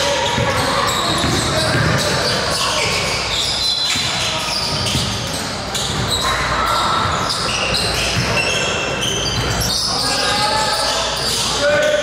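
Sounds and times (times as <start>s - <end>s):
sneaker squeaks: 0.0s - 12.0s
basketball dribbling: 0.2s - 3.0s, 4.0s - 6.1s.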